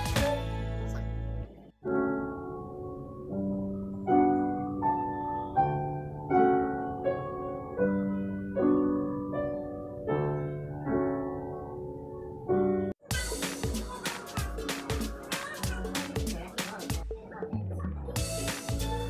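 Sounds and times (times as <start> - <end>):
calm piano music: 1.8 - 13.0.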